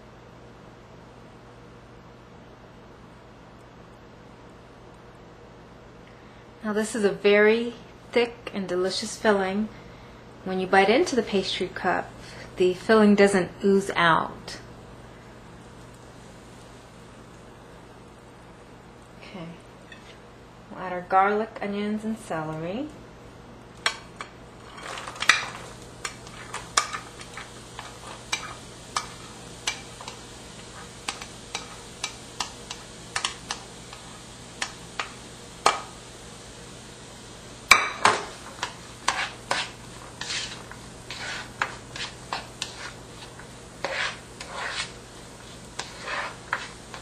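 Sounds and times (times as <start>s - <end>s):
vegetables sizzling in butter: 15.5s - 17.5s, 23.6s - 47.0s
wooden spoon scraping a pan: 23.9s - 35.8s, 38.1s - 47.0s.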